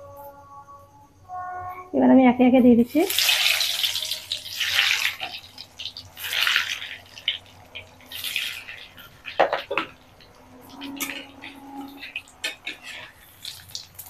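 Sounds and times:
food sizzling in hot oil: 2.9s - 14.0s.

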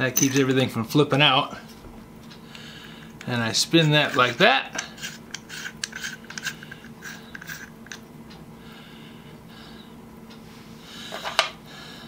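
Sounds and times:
faint steady hum: 0.0s - 12.0s
drill chuck shell spinning rasp: 3.0s - 8.1s
light metal scraping: 3.2s - 8.0s.

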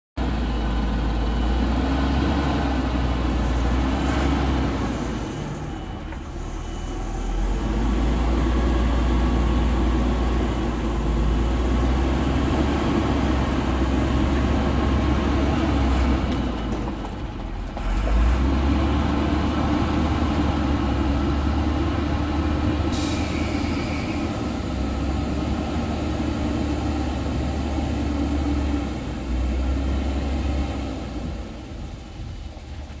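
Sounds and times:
bus diesel engine rumbling: 0.2s - 33.0s
air hiss: 22.9s - 24.3s.

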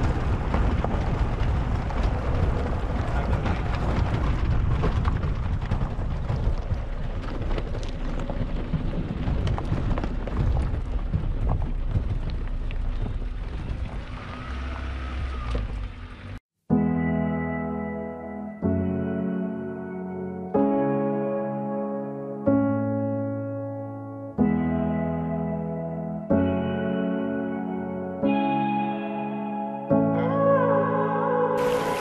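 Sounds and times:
stones rattling under tyres: 0.0s - 16.0s
vehicle rumbling on gravel: 0.0s - 16.4s, 31.6s - 32.0s.

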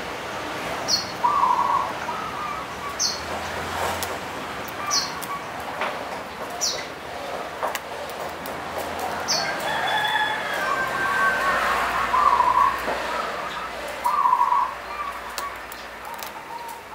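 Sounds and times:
dove cooing: 9.2s - 16.9s.

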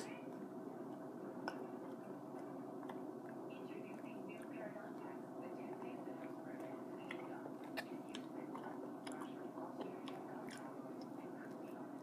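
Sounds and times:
low background hum: 0.0s - 12.0s
person chewing food: 0.3s - 3.5s, 5.7s - 12.0s.

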